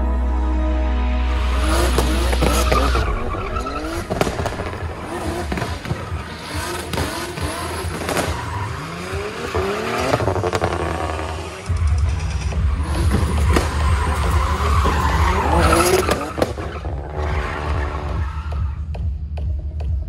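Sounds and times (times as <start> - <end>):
car engine revving hard: 1.4 - 11.8, 12.6 - 18.1.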